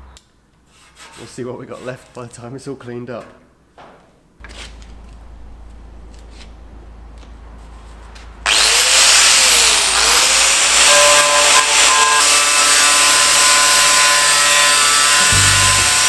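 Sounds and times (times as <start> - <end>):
angle grinder wire wheel on metal: 8.5 - 16.0
low hum: 15.2 - 16.0.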